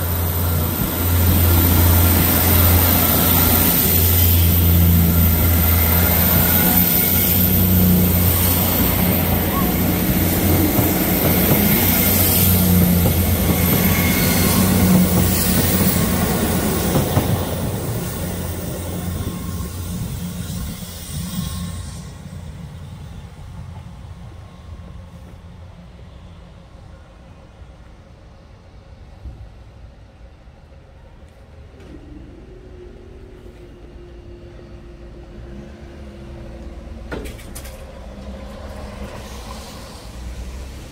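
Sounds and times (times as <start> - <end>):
road vehicle noise: 0.0 - 22.6, 31.8 - 40.9
train wheels on rails: 0.0 - 28.4, 29.0 - 40.9
diesel train engines droning: 0.0 - 40.9.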